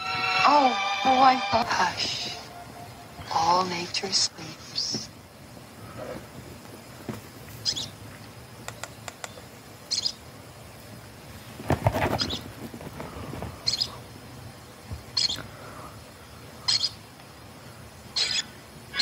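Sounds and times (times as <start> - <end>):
lower animal call: 0.0 - 3.6
faint clicks: 8.2 - 9.4.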